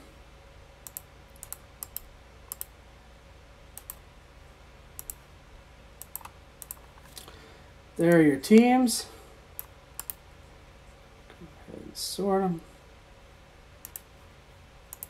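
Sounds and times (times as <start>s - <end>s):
faint steady hum: 0.0s - 15.0s
mouse and keyboard clicks: 6.0s - 7.2s, 9.6s - 10.2s.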